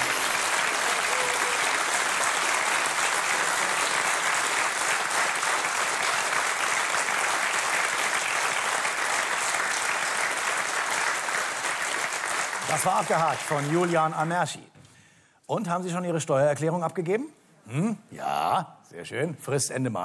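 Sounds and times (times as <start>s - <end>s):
audience applauding: 0.0s - 14.6s.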